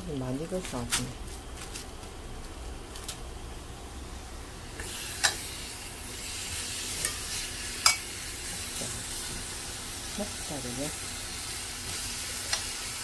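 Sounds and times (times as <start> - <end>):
meat sizzling on a grill pan: 4.6 - 13.0.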